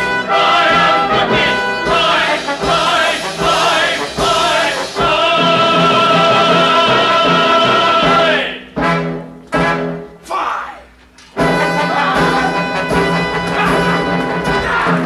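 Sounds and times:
chorus singing: 0:00.0 - 0:08.8, 0:11.4 - 0:15.0
pit orchestra playing: 0:00.0 - 0:10.1, 0:11.4 - 0:15.0.

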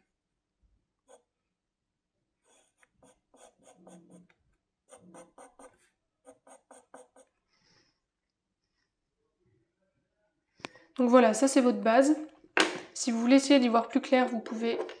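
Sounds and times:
pencil scratching on paper: 0:01.0 - 0:01.4, 0:02.4 - 0:07.5.

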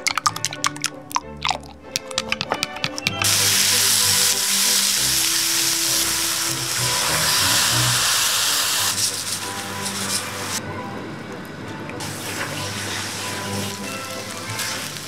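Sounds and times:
liquid pouring into pan: 0:00.0 - 0:10.4, 0:12.0 - 0:15.0
food sizzling in a frying pan: 0:03.2 - 0:10.6, 0:12.0 - 0:15.0.

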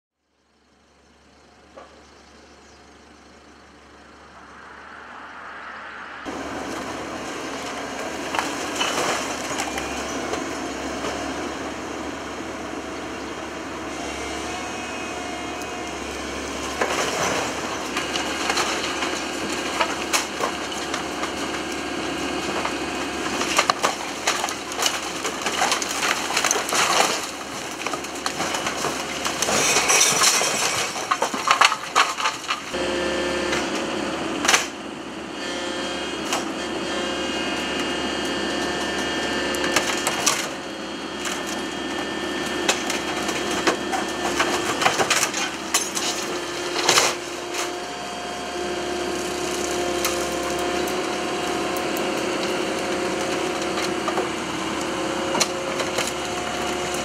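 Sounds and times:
excavator engine running: 0:00.2 - 0:57.0
outdoor rumble: 0:00.2 - 0:57.0
rubble crashing down: 0:06.3 - 0:10.0, 0:23.3 - 0:32.8.

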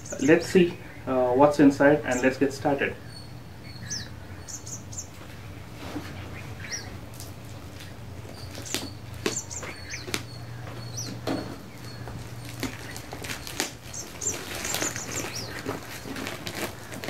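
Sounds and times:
birds chirping: 0:00.0 - 0:17.0
packaging clicks and rustles: 0:11.9 - 0:17.0.

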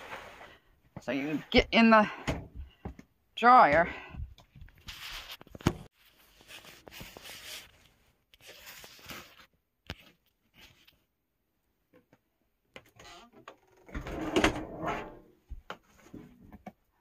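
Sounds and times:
laundry basket scraping floor: 0:00.0 - 0:01.5.

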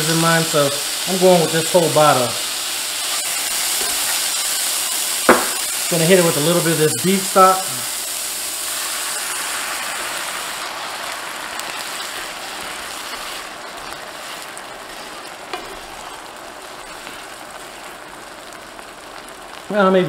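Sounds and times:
stock sizzling in a skillet: 0:00.0 - 0:20.0
tongs stirring: 0:10.1 - 0:17.9.

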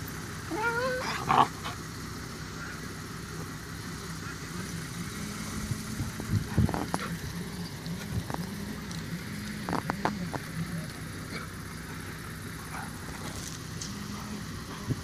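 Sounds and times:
steady low hum: 0:00.0 - 0:15.0
dog yelping: 0:00.5 - 0:01.8.

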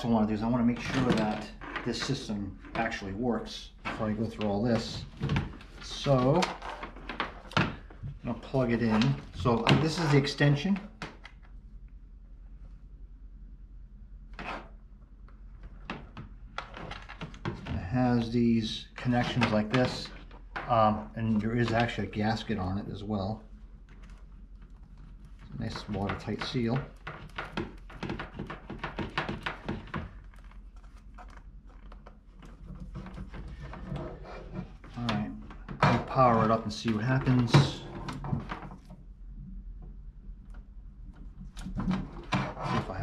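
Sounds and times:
cable rustle: 0:19.2 - 0:39.0.

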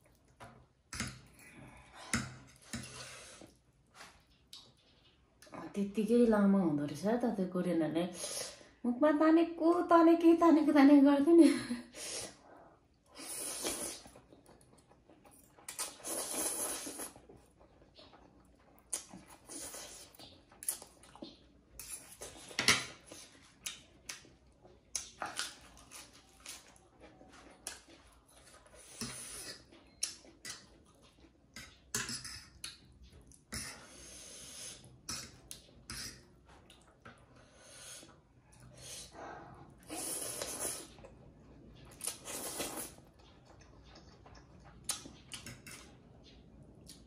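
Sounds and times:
person slurping noodles: 0:13.2 - 0:14.1, 0:15.8 - 0:17.2.

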